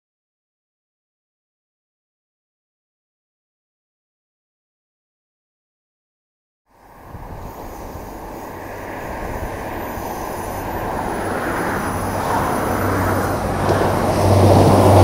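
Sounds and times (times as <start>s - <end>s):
train engine hum: 6.7s - 15.0s
wheels rumbling on rails: 6.7s - 15.0s.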